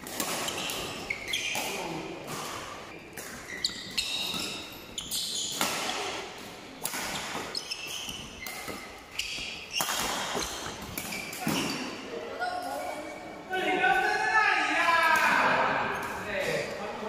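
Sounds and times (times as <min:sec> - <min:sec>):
racket hitting shuttlecock: 0:00.0 - 0:11.9
shoes squeaking on court: 0:00.0 - 0:13.3.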